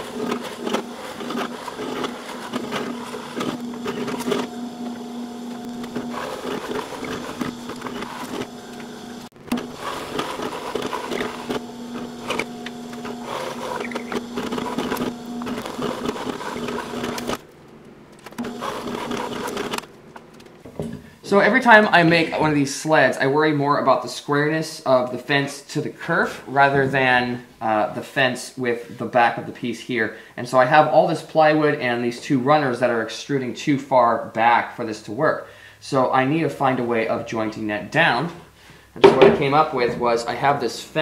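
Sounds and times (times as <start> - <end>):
drill bit cutting wood: 0.0 - 17.4, 18.4 - 19.8
drill press motor hum: 0.0 - 22.4.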